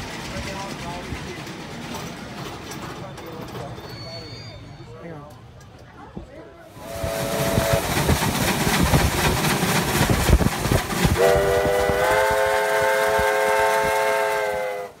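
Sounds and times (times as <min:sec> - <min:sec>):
steam locomotive exhaust: 0:06.7 - 0:15.0
steam whistle: 0:06.8 - 0:07.9, 0:11.2 - 0:15.0.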